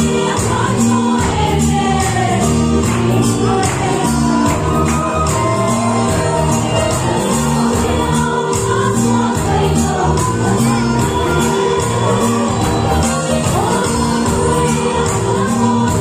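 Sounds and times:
group singing worship song: 0.0s - 16.0s
instrumental backing with beat: 0.0s - 16.0s.

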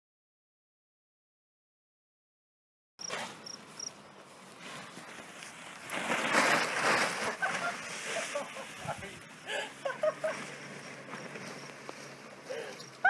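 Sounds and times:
plastic tarp rustling: 4.2s - 13.0s.

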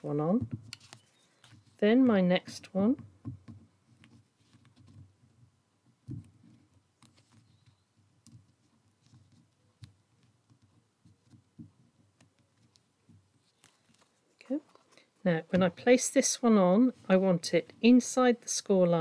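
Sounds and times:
card tapping and rustling: 0.4s - 1.8s.

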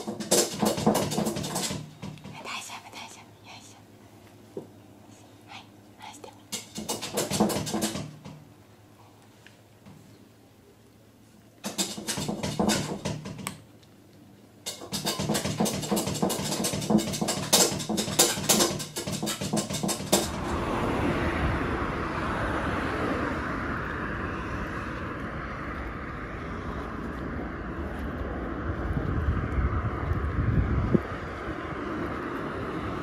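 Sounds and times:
kitten clicking and scratching: 0.0s - 3.7s, 6.0s - 8.3s, 11.6s - 13.9s, 14.6s - 20.4s
traffic noise: 0.0s - 33.0s
wind: 0.0s - 33.0s.

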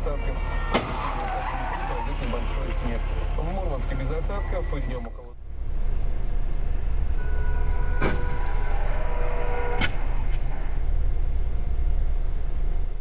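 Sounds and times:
engine and road rumble: 1.4s - 13.0s
crash bangs: 5.4s - 13.0s
steady high tone: 5.4s - 13.0s.

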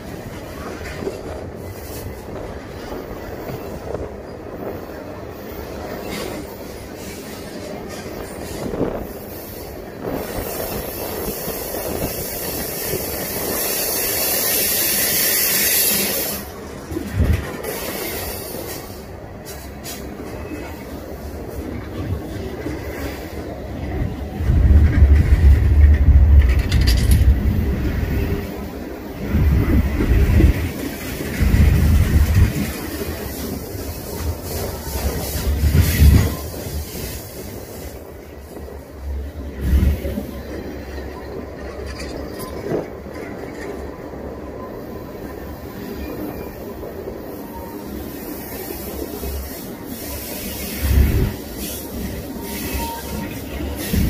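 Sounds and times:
train wheels rumbling on rails: 0.0s - 54.0s
high wheel squeal: 51.7s - 54.0s.

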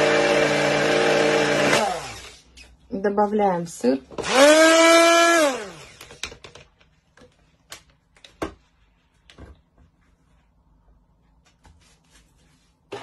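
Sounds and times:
blender motor winding down: 0.0s - 2.4s, 4.2s - 6.2s.

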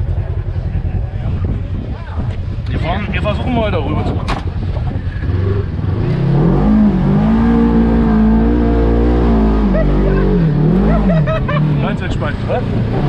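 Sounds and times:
utility vehicle engine revving: 2.8s - 13.0s.

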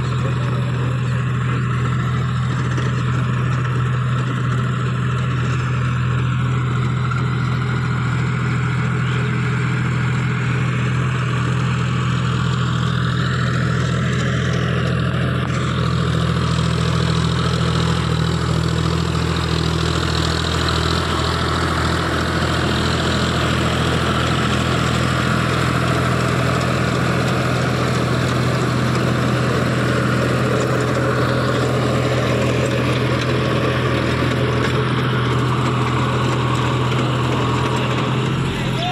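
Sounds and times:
rotary tiller churning soil: 0.0s - 38.9s
tractor diesel engine under load: 0.0s - 38.9s.

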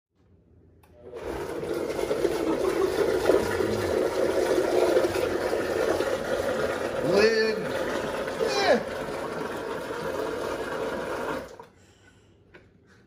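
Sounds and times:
liquid pouring into blender jar: 1.1s - 11.8s.

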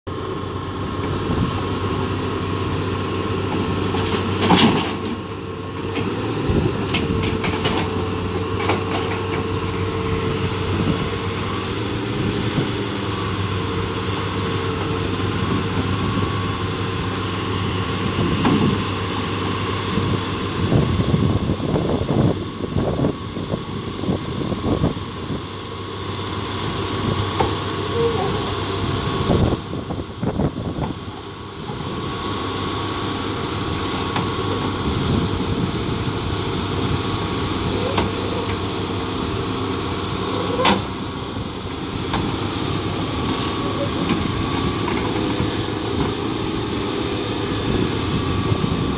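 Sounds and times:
excavator diesel engine under load: 0.1s - 48.9s
hydraulic whine: 0.4s - 48.9s
steel tracks clanking on metal: 3.5s - 10.9s, 27.3s - 29.4s, 37.5s - 38.7s, 40.1s - 41.1s, 42.0s - 46.3s.

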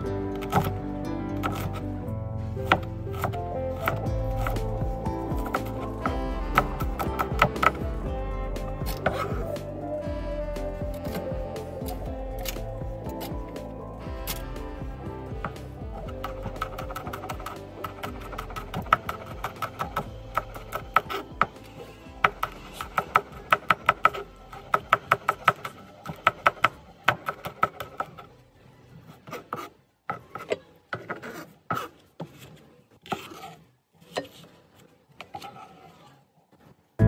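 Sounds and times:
faint music: 0.0s - 37.0s
knife chopping on plastic board: 2.6s - 4.6s, 6.6s - 7.8s
knife knocking and scraping: 2.6s - 4.8s.

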